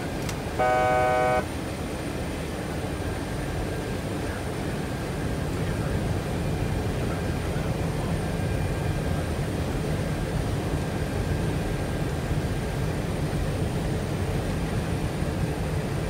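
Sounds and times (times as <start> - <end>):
faint high whine: 0.0 - 1.8
drone of jet engines: 0.0 - 16.0.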